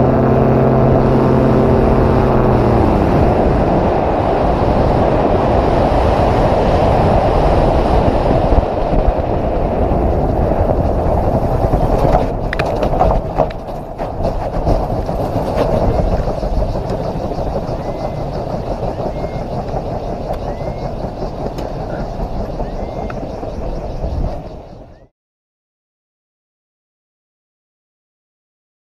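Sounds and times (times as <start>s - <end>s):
aircraft engine winding down: 0.0s - 25.1s
wind rushing over microphone: 0.0s - 25.1s
knocks and rattles rolling through grass: 9.6s - 19.4s.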